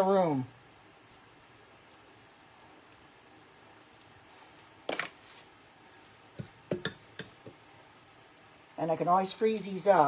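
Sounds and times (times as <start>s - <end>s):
metal scoop knocking on glass bowl: 6.4s - 7.6s.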